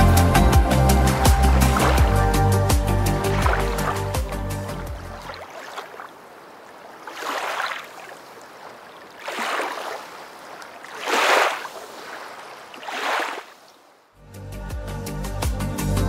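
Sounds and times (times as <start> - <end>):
background music: 0.0 - 5.3, 14.2 - 16.0
waves washing in: 0.0 - 14.1.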